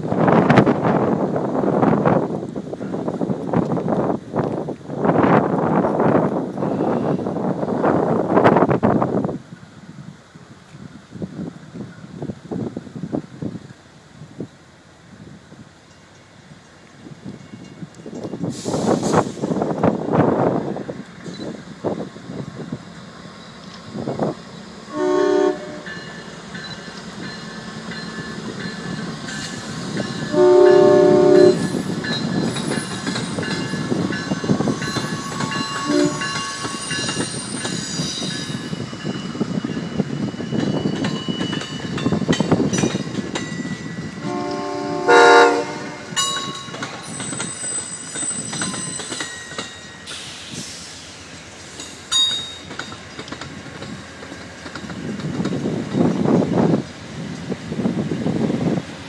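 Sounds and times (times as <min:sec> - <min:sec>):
train rumbling past: 0:00.0 - 0:59.0
locomotive horn blasts: 0:24.9 - 0:26.1, 0:30.3 - 0:31.8, 0:35.7 - 0:36.4, 0:44.2 - 0:46.2
wheels clacking over rail joints: 0:25.6 - 0:44.6, 0:46.0 - 0:50.6, 0:51.3 - 0:57.5.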